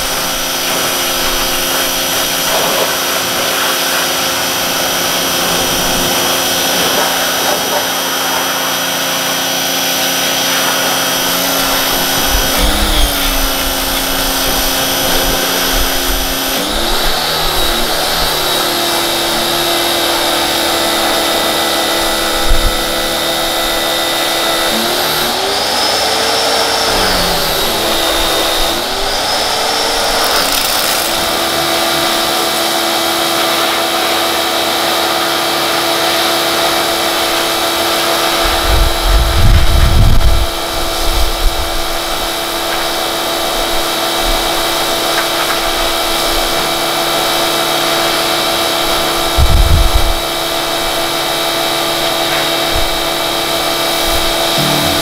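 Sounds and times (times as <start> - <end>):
water spray hissing on bodywork: 0.0 - 18.6
pressure washer motor whine: 0.0 - 55.0.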